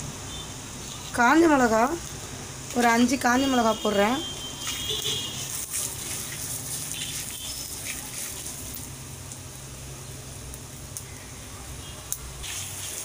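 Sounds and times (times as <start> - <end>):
spices sizzling in oil: 0.0 - 13.0.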